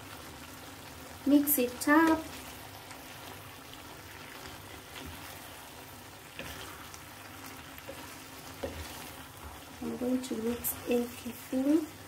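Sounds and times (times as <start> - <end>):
stew sizzling in frying pan: 0.0 - 12.0
wooden spoon scraping pan: 4.2 - 12.0.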